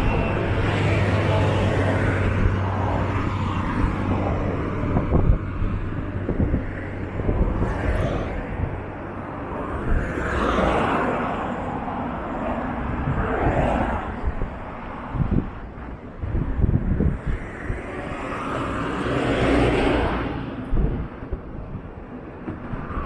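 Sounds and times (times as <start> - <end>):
road traffic rumble: 0.0 - 23.0.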